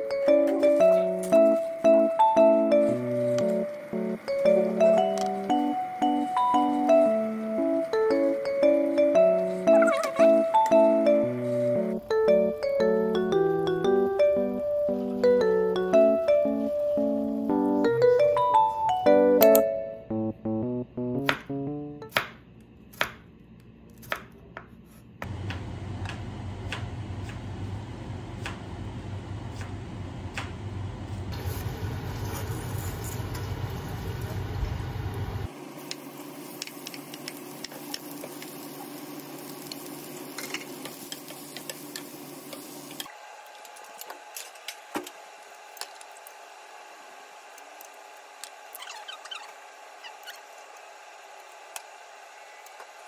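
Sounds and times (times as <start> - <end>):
pot of water boiling: 31.4 - 43.1.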